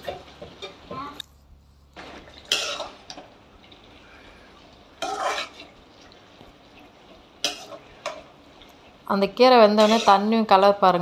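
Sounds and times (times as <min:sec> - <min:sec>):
spoon scraping metal pan: 0:02.4 - 0:03.3, 0:05.0 - 0:05.8, 0:07.4 - 0:08.4, 0:09.6 - 0:10.5
spoon stirring greens in water: 0:09.6 - 0:10.4.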